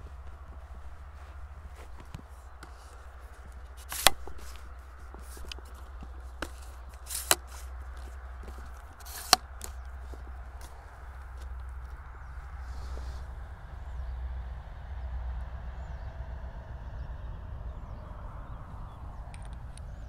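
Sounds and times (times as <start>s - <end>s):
footsteps in wheat field: 0.0s - 13.3s
camera tripod handling clicks: 2.0s - 11.7s.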